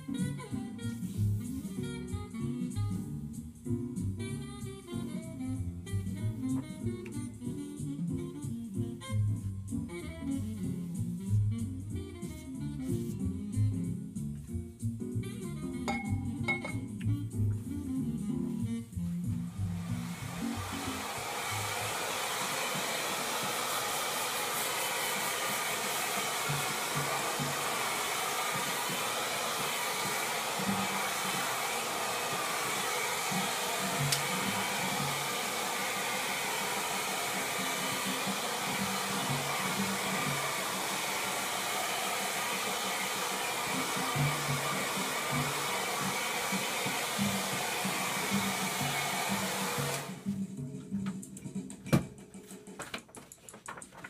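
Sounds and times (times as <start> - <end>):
hair dryer blowing: 19.4 - 50.4.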